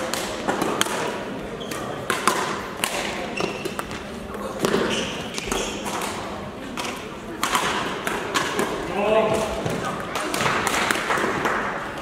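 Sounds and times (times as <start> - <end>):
rackets striking shuttlecocks: 0.0 - 12.0
shoes squeaking on court floor: 1.5 - 2.1, 3.0 - 6.3.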